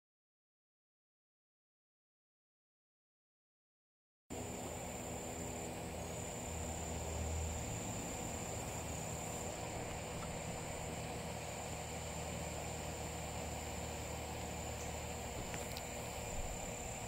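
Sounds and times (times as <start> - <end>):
insects droning: 4.3 - 17.0
low steady hum: 4.3 - 17.0.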